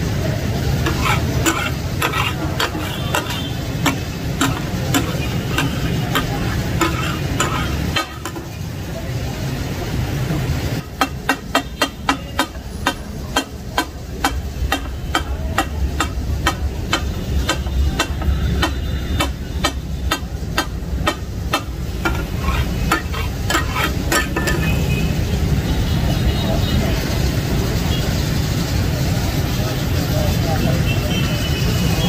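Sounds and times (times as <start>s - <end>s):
metal spatulas chopping on griddle: 0.0s - 8.8s, 10.3s - 25.0s
gravy sizzling and bubbling: 0.0s - 31.6s.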